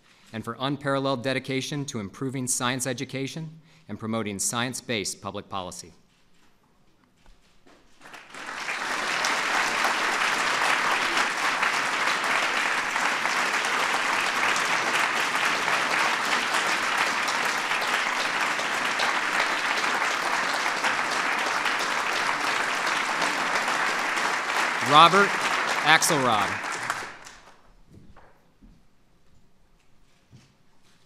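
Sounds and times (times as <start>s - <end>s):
audience applauding: 8.0s - 27.6s.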